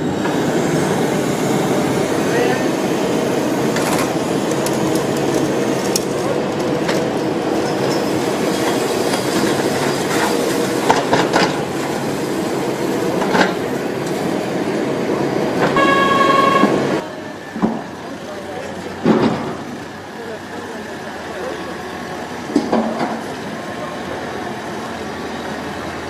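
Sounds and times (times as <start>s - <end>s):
tram rolling on track: 0.0s - 26.0s
wheels clicking over rail joints: 3.6s - 12.2s, 13.0s - 14.4s
steady pitched tone: 15.6s - 17.0s.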